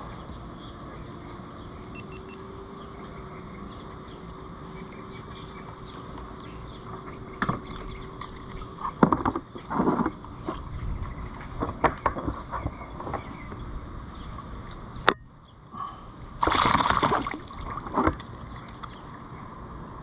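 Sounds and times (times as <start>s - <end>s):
fish splashing at surface: 16.3s - 18.0s.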